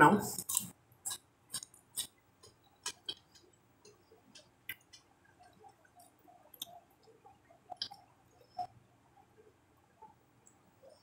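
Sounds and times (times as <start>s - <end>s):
person chewing: 0.4s - 8.7s.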